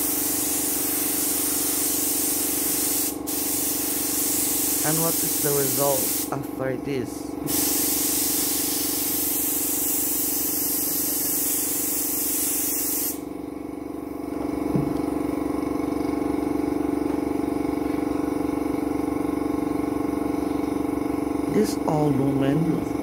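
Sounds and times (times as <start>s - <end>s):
spray gun hissing: 0.0s - 6.5s, 7.4s - 13.3s
air compressor motor humming: 0.0s - 23.0s
faint knock: 14.7s - 15.0s.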